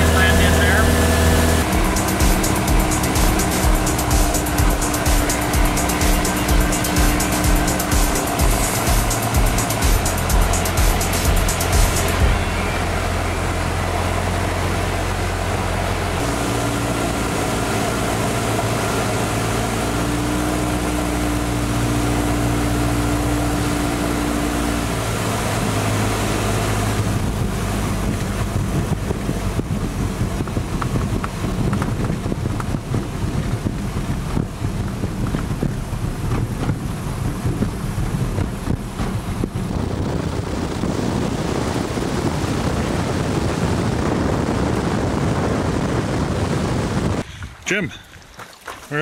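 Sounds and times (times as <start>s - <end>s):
airplane engine and propeller: 0.0s - 47.8s
floats running on water: 1.3s - 12.4s, 14.0s - 49.0s
wind noise: 25.6s - 48.1s.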